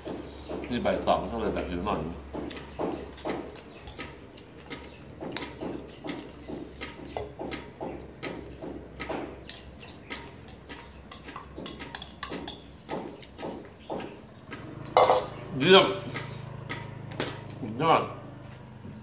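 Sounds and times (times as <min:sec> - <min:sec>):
cutlery scraping a bowl: 0:03.1 - 0:05.5, 0:09.4 - 0:13.8, 0:15.0 - 0:15.4
chewing: 0:03.2 - 0:08.8.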